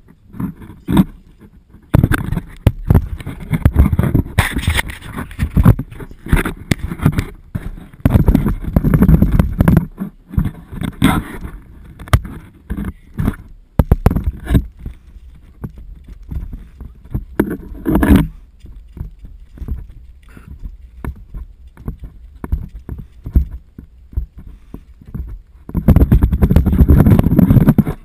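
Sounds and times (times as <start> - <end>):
camera handling knocks and rubbing: 1.8 - 20.0, 21.0 - 28.0.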